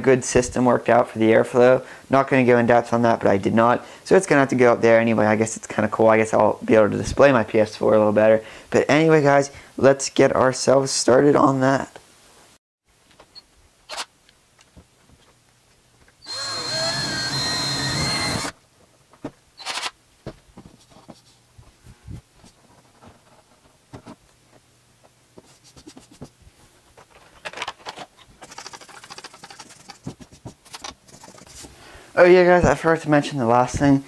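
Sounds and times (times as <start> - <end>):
power drill whine: 16.2 - 18.6
handling clicks and knocks: 26.9 - 31.0.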